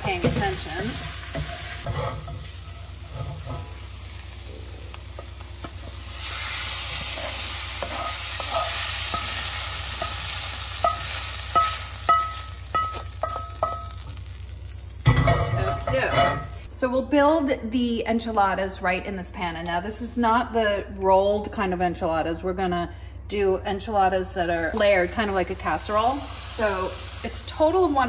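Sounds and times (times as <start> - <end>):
vegetables sizzling in a skillet: 0.0 - 16.7, 24.7 - 28.0.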